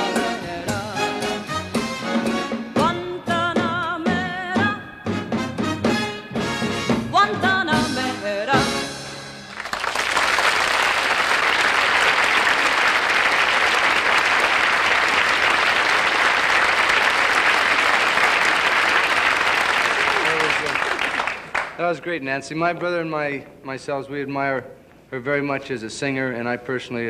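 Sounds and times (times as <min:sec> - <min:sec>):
woman singing with band: 0:00.0 - 0:01.5
audience applause: 0:09.5 - 0:21.8.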